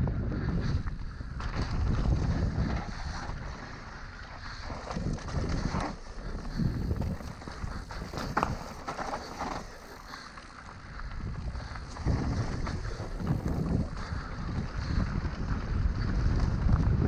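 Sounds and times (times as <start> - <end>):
bike tyres rolling on dirt: 0.0 - 17.0
wind buffeting microphone: 0.0 - 17.0
bike knocks and rattles: 4.9 - 10.3.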